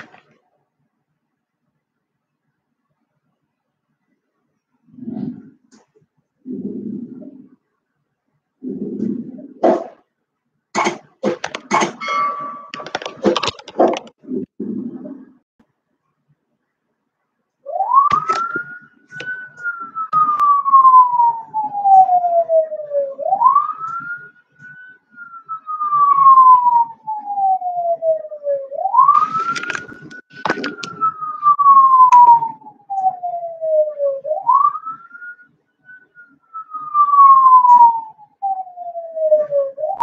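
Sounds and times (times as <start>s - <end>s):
siren wailing: 17.7s - 40.0s.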